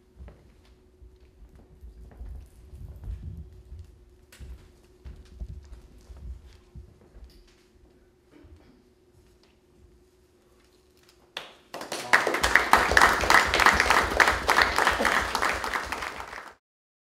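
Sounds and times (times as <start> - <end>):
audience applauding: 11.4 - 16.6.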